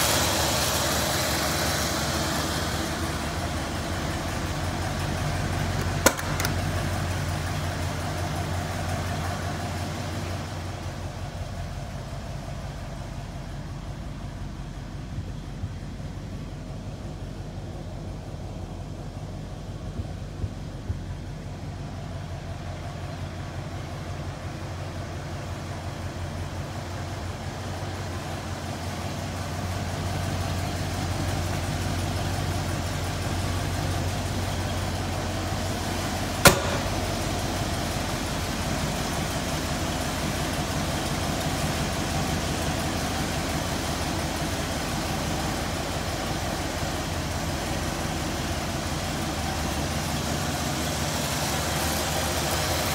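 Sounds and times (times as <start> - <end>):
car engine idling: 0.0 - 52.9
sharp knock: 6.0 - 6.5, 36.4 - 37.2.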